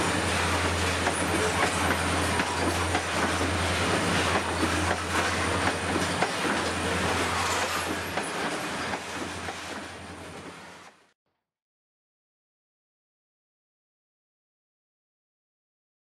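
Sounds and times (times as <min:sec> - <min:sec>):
wheels clicking over rail joints: 0:00.0 - 0:10.0
train wagons rolling past: 0:00.0 - 0:11.0.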